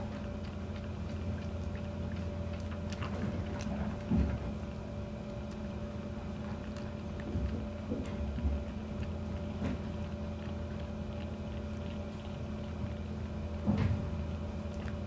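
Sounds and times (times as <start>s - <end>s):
steady low hum: 0.0s - 15.0s
kitten sucking clicks: 5.2s - 15.0s.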